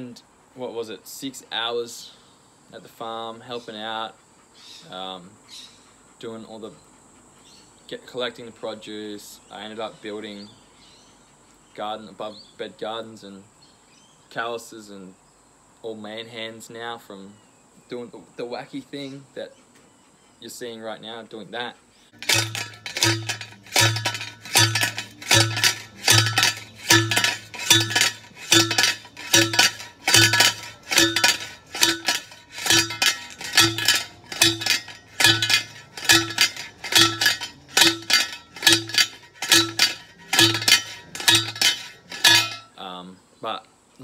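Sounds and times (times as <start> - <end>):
post driver clanging on steel post: 22.2 - 42.8.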